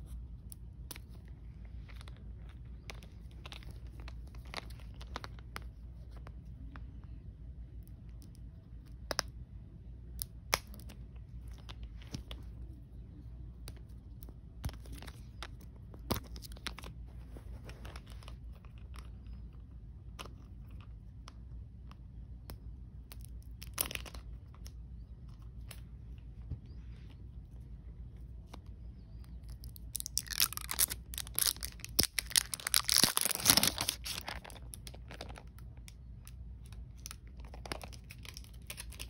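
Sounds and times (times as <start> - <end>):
plastic wrap crinkling and tearing: 29.6 - 35.5, 37.0 - 39.0.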